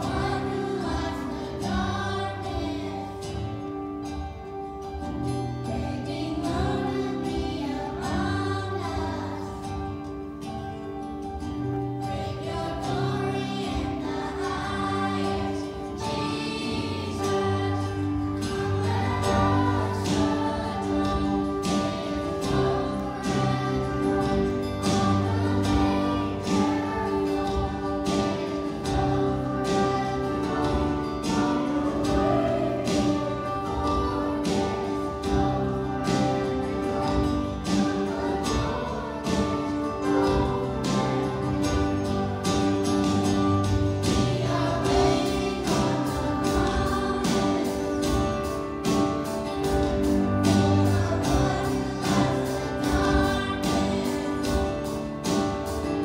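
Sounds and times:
children's choir singing: 0:00.0 - 0:56.0
instrumental accompaniment with beat: 0:00.0 - 0:56.0.

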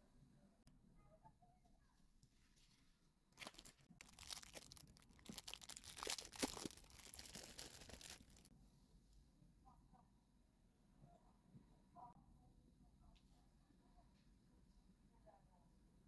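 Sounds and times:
plastic packaging crinkling: 0:03.4 - 0:08.5.

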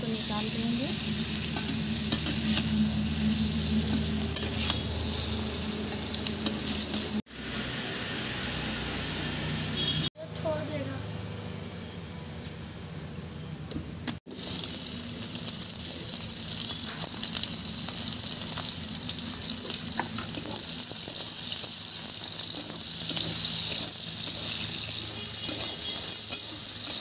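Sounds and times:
onions sizzling in hot oil: 0:00.0 - 0:10.0, 0:14.3 - 0:27.0
wooden spatula scraping and clicking: 0:03.8 - 0:05.0.

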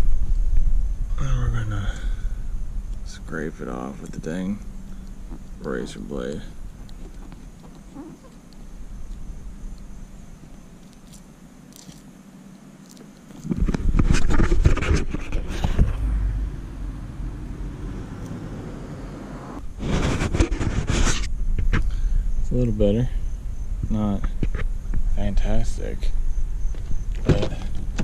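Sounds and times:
wind rumbling on microphone: 0:00.0 - 0:03.2, 0:13.4 - 0:28.0.

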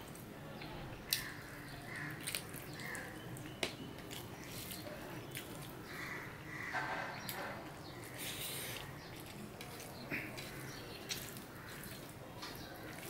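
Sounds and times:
fingers mixing food on steel plate: 0:00.0 - 0:06.2, 0:06.8 - 0:13.0
chewing and wet mouth noises: 0:00.0 - 0:06.3, 0:07.1 - 0:13.0.

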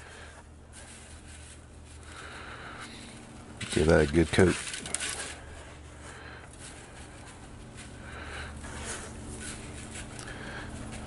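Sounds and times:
low steady hum: 0:00.0 - 0:11.0
sugar granules pattering: 0:00.2 - 0:05.5.

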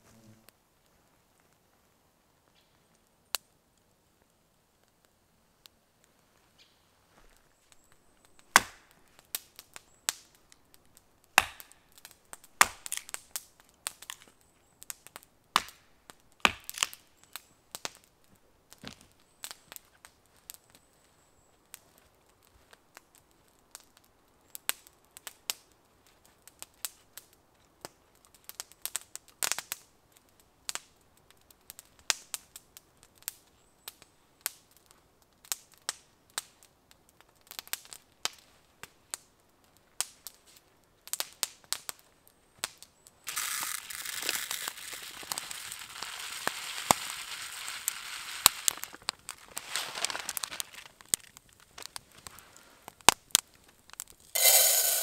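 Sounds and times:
campfire crackling and popping: 0:02.4 - 0:55.0
dense rustling hiss: 0:54.4 - 0:55.0.

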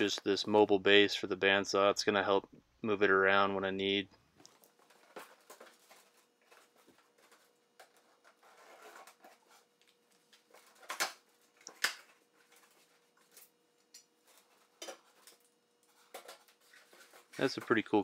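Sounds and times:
cardboard rustling: 0:04.5 - 0:13.6, 0:14.2 - 0:18.0.

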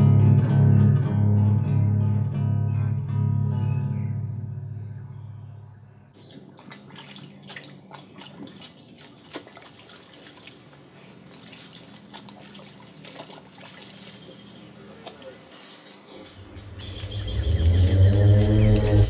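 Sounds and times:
water trickling and dripping: 0:06.1 - 0:19.0
small clicks and splashes: 0:06.2 - 0:15.5.

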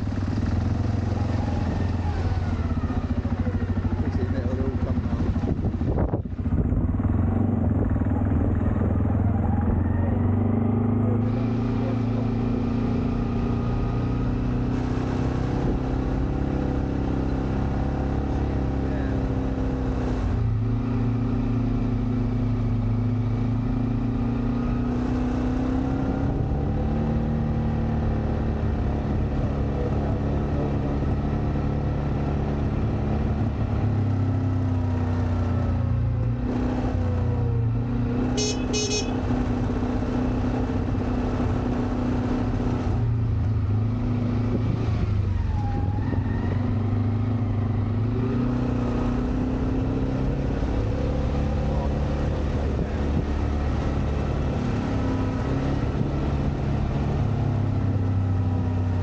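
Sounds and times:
vehicle engine running: 0:00.0 - 0:19.4, 0:28.0 - 0:45.4, 0:47.4 - 0:59.0
car horn double beep: 0:38.3 - 0:39.2.

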